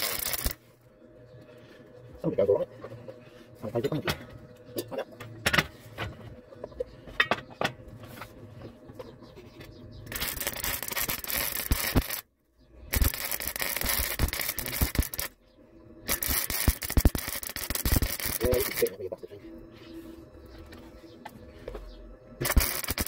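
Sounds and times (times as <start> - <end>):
welder arc crackling: 0.0 - 1.6, 10.0 - 19.4, 22.4 - 23.0.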